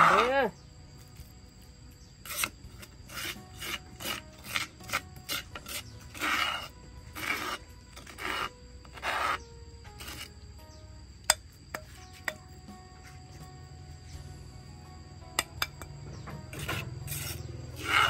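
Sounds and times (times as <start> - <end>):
metal spoon scraping clay mortar: 2.0 - 10.4, 11.2 - 13.4, 15.4 - 18.0.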